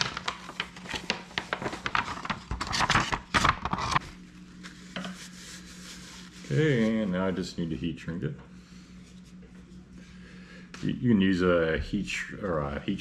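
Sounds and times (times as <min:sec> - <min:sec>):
plastic tubing crinkling: 0:00.0 - 0:03.1
faint steady hum: 0:00.0 - 0:13.0.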